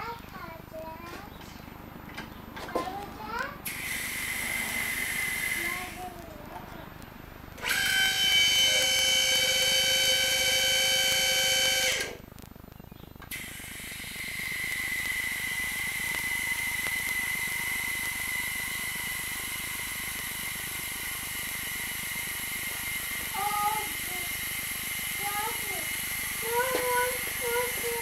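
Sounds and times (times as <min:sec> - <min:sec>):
hiss with high whistle: 0:03.6 - 0:06.1, 0:13.3 - 0:28.0
hydraulic pump motor whining: 0:03.6 - 0:06.7, 0:07.5 - 0:12.2, 0:13.3 - 0:28.0.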